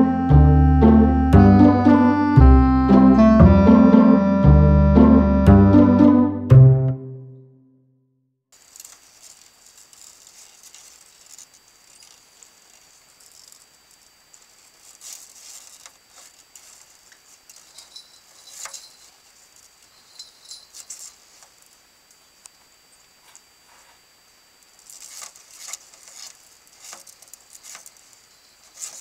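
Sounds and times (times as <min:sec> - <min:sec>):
faint high whine: 0:00.0 - 0:06.5, 0:08.6 - 0:29.0
turtles clawing on plastic floor: 0:14.4 - 0:19.8, 0:24.8 - 0:29.0.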